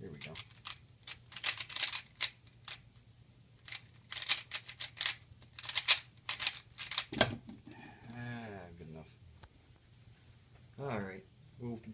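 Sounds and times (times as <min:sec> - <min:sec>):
puzzle cube plastic clacks: 0:00.2 - 0:02.8, 0:03.6 - 0:07.2.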